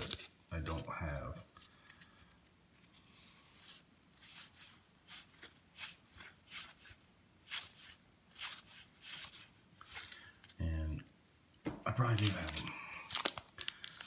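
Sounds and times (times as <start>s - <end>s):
cardboard cards swishing: 2.8s - 10.2s.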